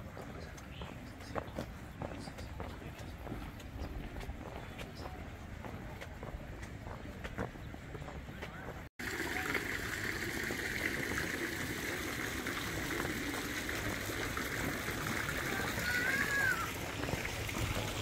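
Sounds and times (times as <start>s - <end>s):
people's voices: 0.0s - 10.2s, 10.8s - 18.0s
fountain water trickling: 9.0s - 18.0s.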